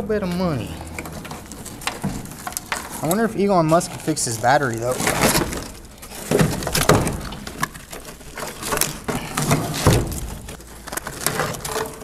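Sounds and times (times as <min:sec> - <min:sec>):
knocks and scraping of debris: 0:00.0 - 0:12.0.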